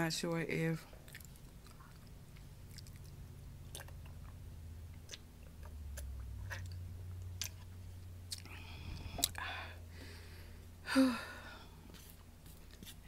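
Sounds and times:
low steady hum: 0:00.0 - 0:13.0
person chewing food: 0:00.9 - 0:09.5
wet mouth clicks: 0:01.1 - 0:07.6, 0:08.3 - 0:09.4.

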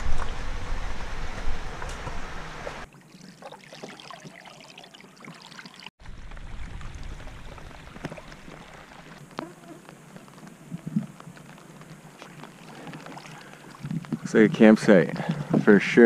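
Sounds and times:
canoe rumbling and rustling: 0:00.0 - 0:03.0, 0:06.0 - 0:16.0
lake water trickling and lapping: 0:01.8 - 0:16.0
rain falling on lake: 0:03.6 - 0:15.4.

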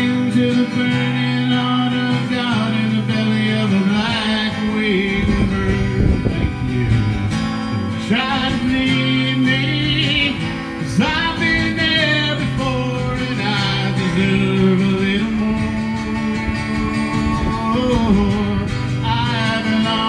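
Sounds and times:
acoustic guitar strumming: 0:00.0 - 0:20.0
man singing: 0:00.0 - 0:20.0.

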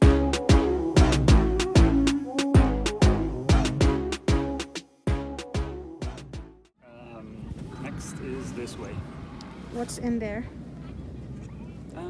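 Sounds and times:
background music with drum beat: 0:00.0 - 0:06.6.

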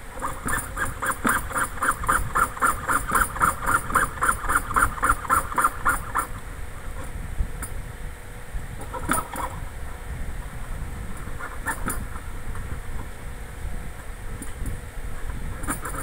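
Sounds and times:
saw cutting brass: 0:00.1 - 0:06.3.

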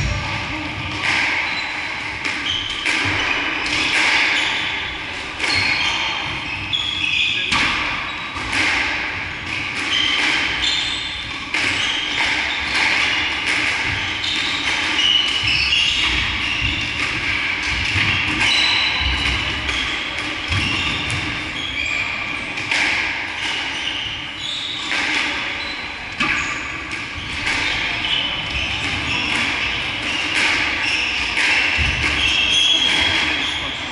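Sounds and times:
squash ball hit by rackets: 0:00.0 - 0:06.8, 0:07.4 - 0:21.6, 0:22.5 - 0:33.8
ball striking walls and floor: 0:24.9 - 0:33.9.

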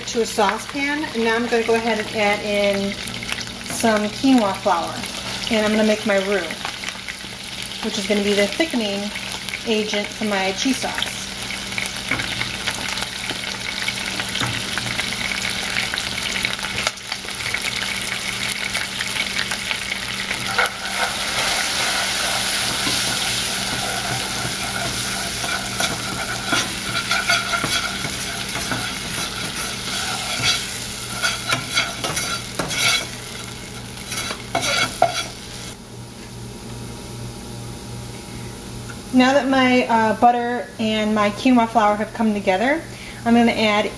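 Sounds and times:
roux sizzling in a saucepan: 0:00.0 - 0:35.8
spoon scraping pan bottom: 0:20.4 - 0:35.5.

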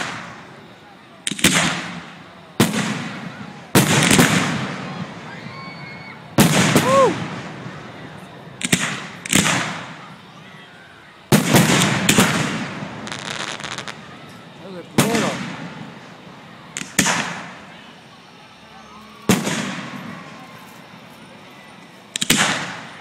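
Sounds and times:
firework shells bursting with echo: 0:00.0 - 0:05.2, 0:06.3 - 0:07.8, 0:08.6 - 0:10.2, 0:11.3 - 0:17.8, 0:19.3 - 0:21.0, 0:22.1 - 0:23.0
crackling pops: 0:01.2 - 0:03.1, 0:08.6 - 0:10.0, 0:11.3 - 0:14.4, 0:16.7 - 0:17.6, 0:22.1 - 0:22.9.

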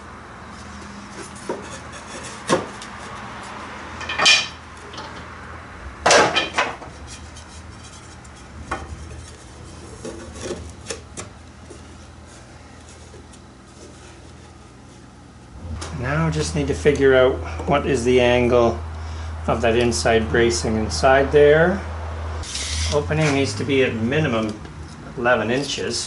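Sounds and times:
wood rubbing on wood: 0:00.5 - 0:04.0, 0:06.7 - 0:15.1, 0:22.4 - 0:23.4
wooden strips clattering: 0:06.0 - 0:14.5.

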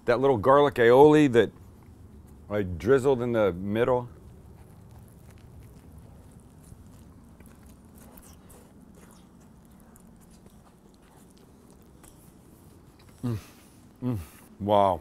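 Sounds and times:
low steady hum: 0:00.0 - 0:15.0
person chewing crunchy bread: 0:04.0 - 0:14.5.

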